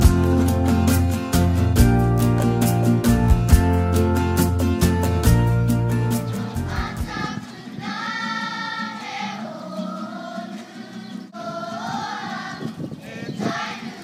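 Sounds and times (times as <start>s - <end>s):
music track: 0.0s - 7.6s
children singing together: 6.3s - 14.0s.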